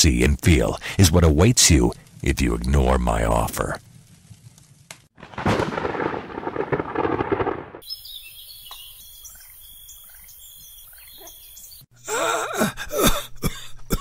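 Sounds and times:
steady hiss: 0:00.0 - 0:05.0
loud crackling thunder rumble: 0:05.2 - 0:07.9.

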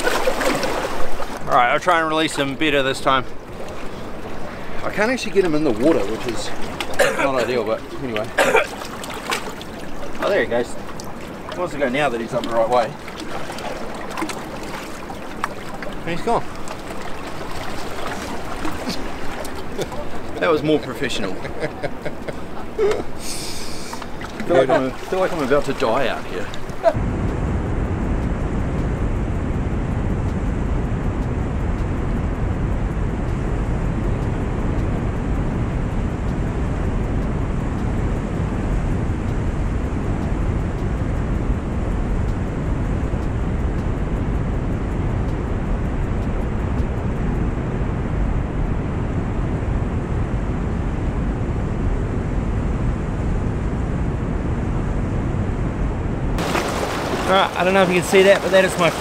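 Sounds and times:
fast-flowing water: 0:00.0 - 0:27.0, 0:56.4 - 0:59.0
wind rumble on microphone: 0:00.0 - 0:59.0.

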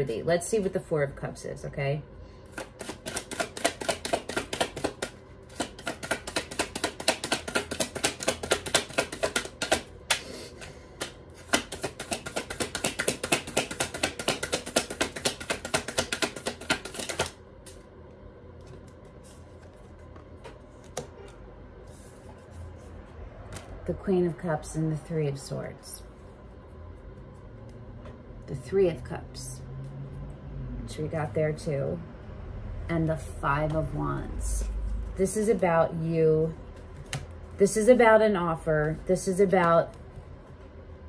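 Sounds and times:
cards being shuffled: 0:02.5 - 0:17.8
cards tapped on table: 0:02.6 - 0:10.2, 0:11.0 - 0:17.4.

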